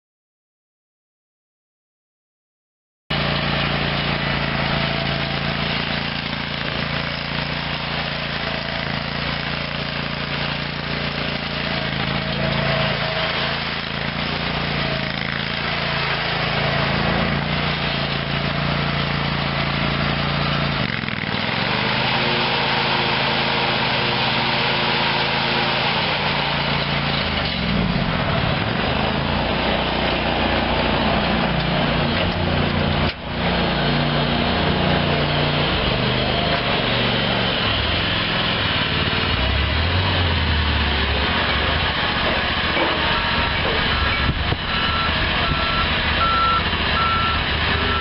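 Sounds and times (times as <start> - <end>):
mower engine running: 3.1 - 48.0.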